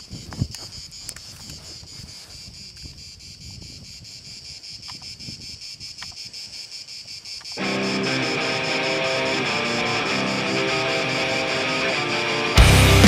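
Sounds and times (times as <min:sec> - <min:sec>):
wind rumble: 0:00.0 - 0:06.4
insects chirring: 0:00.0 - 0:13.0.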